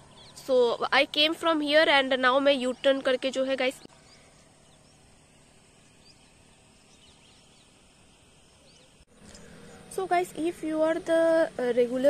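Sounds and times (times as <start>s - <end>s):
faint bird chirps: 2.2s - 10.2s.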